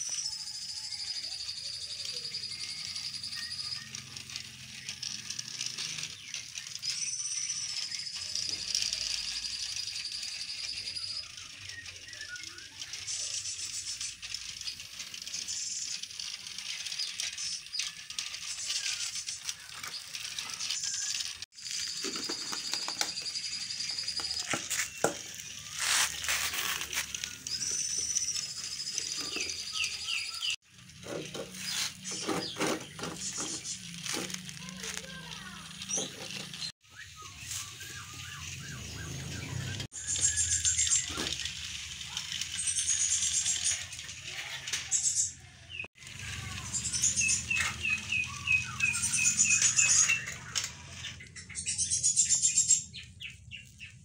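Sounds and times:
toy train wheels rattling: 0:00.0 - 0:54.0.

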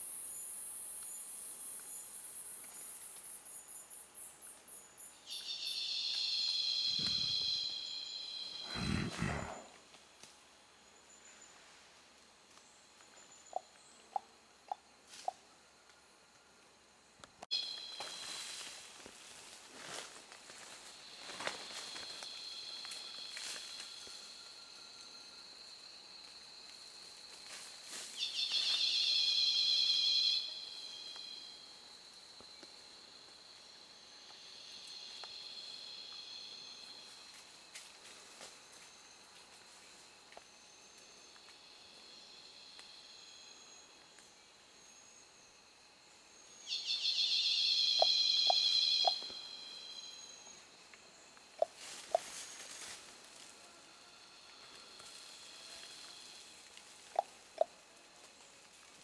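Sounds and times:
high-pitched insect drone: 0:00.0 - 0:09.6, 0:17.5 - 0:56.7
insect rapid pulsing buzz: 0:00.0 - 0:09.9, 0:16.8 - 0:57.8
gorilla grunting: 0:08.7 - 0:09.7.

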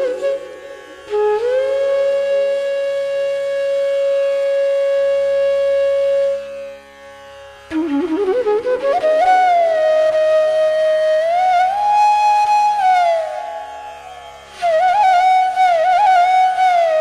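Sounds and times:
flute long held note: 0:00.0 - 0:06.7, 0:07.8 - 0:17.0.

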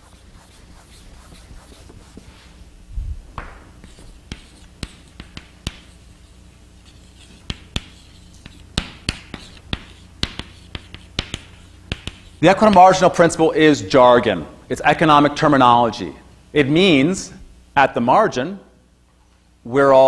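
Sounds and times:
chalk scratching: 0:00.0 - 0:02.6, 0:03.8 - 0:12.8
chalk tapping on blackboard: 0:03.4 - 0:13.0.

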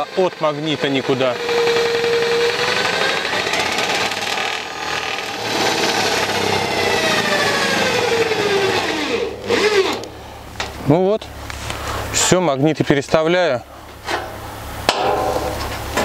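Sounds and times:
drill driving screw into steel: 0:00.8 - 0:10.1.

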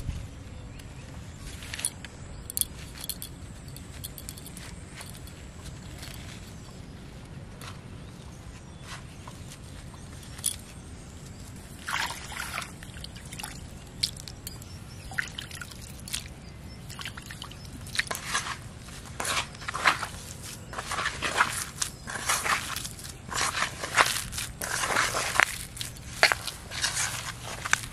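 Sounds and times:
hands kneading wet bait: 0:09.5 - 0:27.9.

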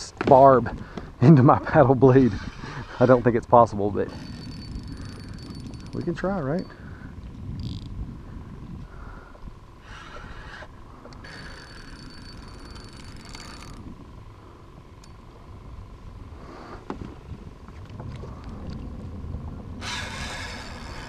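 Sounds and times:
fishing reel drag buzzing: 0:01.8 - 0:08.0, 0:09.7 - 0:15.4, 0:19.8 - 0:21.0.

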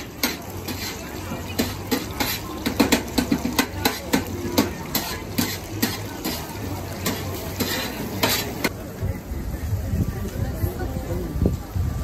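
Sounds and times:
metal tongs clicking on a pan: 0:00.0 - 0:08.5
frying hiss: 0:00.0 - 0:12.0.

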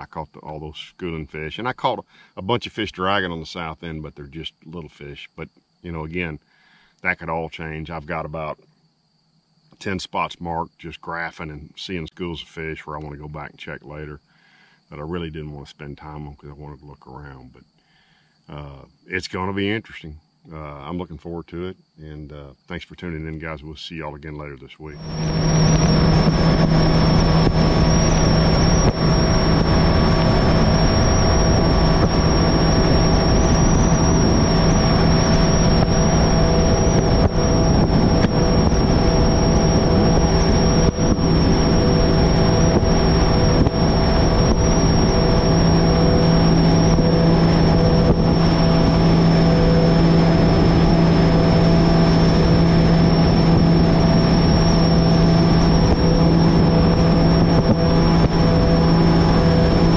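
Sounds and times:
boat engine drone with whine: 0:00.0 - 0:06.4, 0:07.0 - 0:08.7, 0:09.7 - 0:17.5, 0:21.8 - 0:59.9
rush of wind and water: 0:25.0 - 0:59.9.

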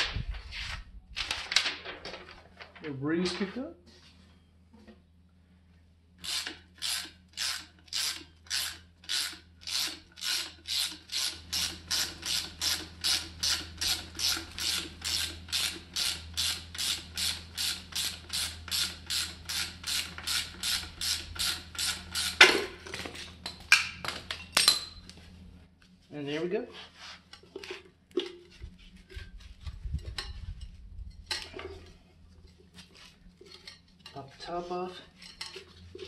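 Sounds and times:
ratchet wrench clicking: 0:06.2 - 0:22.4.

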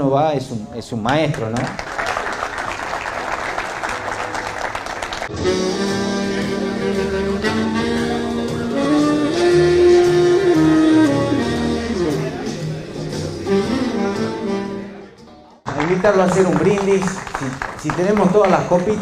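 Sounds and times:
audience applause: 0:01.3 - 0:05.4, 0:15.7 - 0:19.0
backing music with bass line: 0:03.8 - 0:15.6
tenor saxophone melody: 0:04.0 - 0:15.3.

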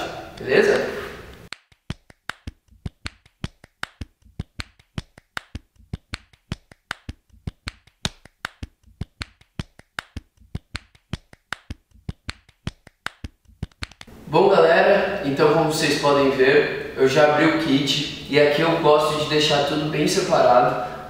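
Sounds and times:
percussive beat of dry clicks: 0:01.4 - 0:14.1.

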